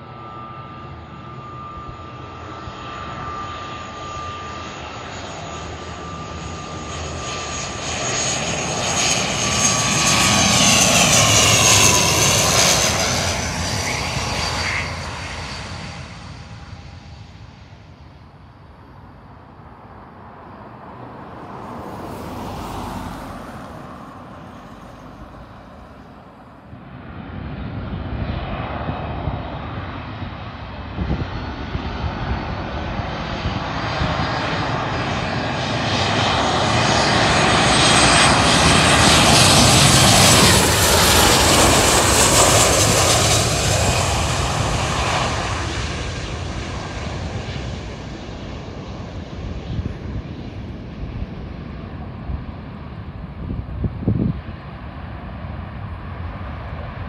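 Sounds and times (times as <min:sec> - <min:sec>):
jet engines rumble and whine: 0:00.0 - 0:57.0.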